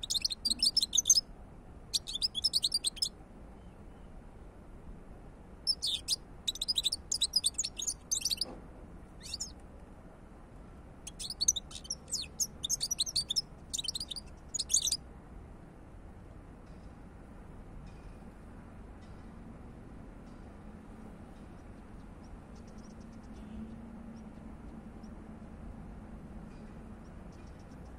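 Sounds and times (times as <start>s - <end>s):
bird twittering: 0.0s - 1.2s, 1.9s - 3.1s, 5.7s - 8.5s, 9.2s - 9.5s, 11.1s - 15.0s.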